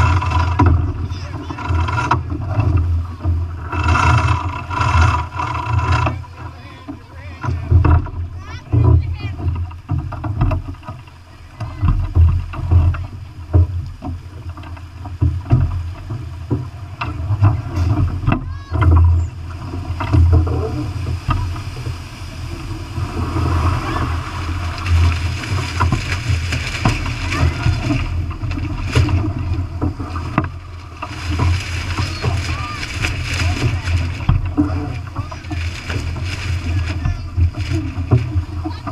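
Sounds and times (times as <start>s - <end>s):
water rushing along hull: 0.0s - 38.9s
wind buffeting microphone: 15.2s - 38.9s.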